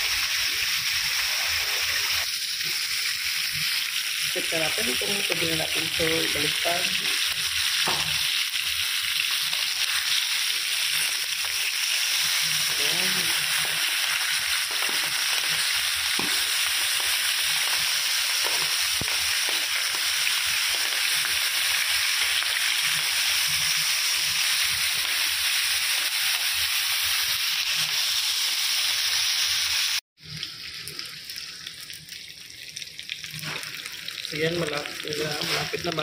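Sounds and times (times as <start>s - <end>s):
chicken frying in hot oil: 0.0s - 36.0s.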